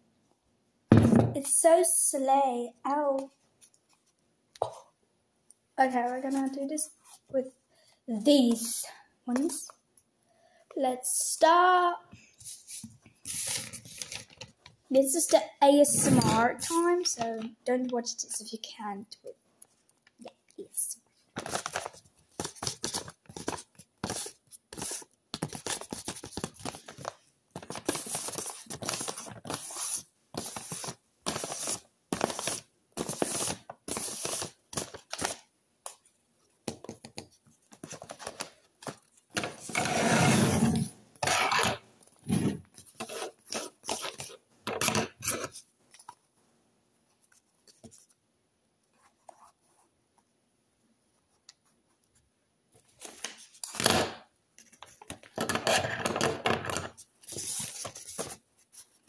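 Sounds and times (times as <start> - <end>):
paper rustling and crinkling: 12.5 - 14.6, 21.3 - 35.4, 36.7 - 39.9, 57.2 - 59.0.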